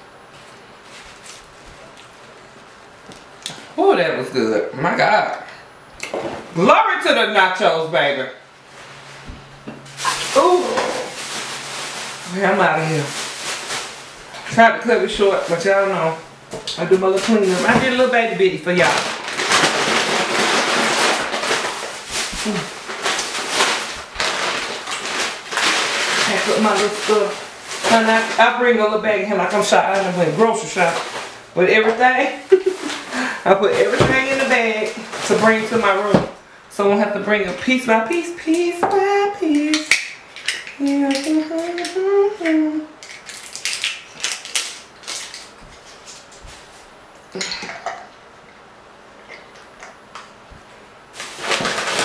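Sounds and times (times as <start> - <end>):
plastic bag crinkling: 0.4 - 3.5, 9.9 - 36.3, 37.3 - 47.0, 51.1 - 52.0
woman humming: 22.4 - 22.8, 40.8 - 43.0, 47.3 - 47.8.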